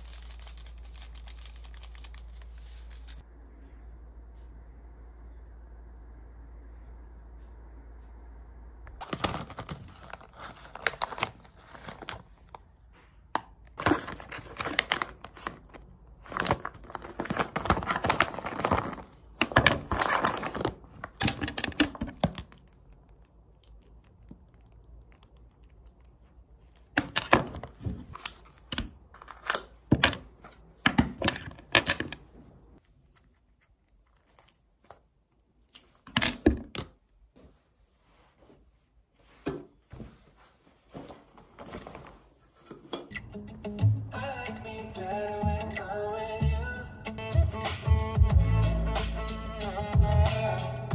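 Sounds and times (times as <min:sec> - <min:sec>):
plastic pouch rustling: 0:00.0 - 0:03.2, 0:09.0 - 0:12.7, 0:13.8 - 0:22.8.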